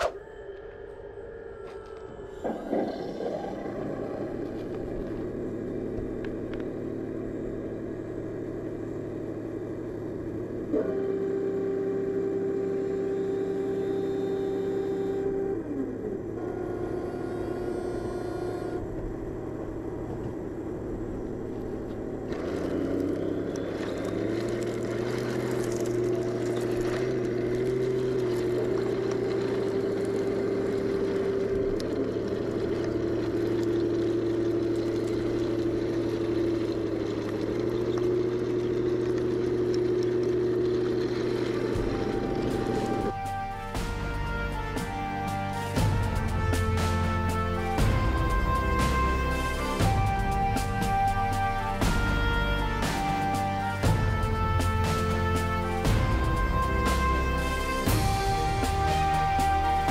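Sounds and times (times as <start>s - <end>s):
loud rough noise: 20.9s - 43.2s.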